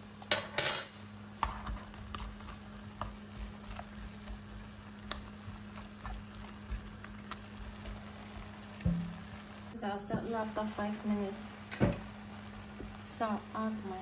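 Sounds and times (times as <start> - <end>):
meat sizzling in a pot: 1.2 - 14.0
stirring clicks: 1.4 - 9.0
low hum: 3.8 - 14.0.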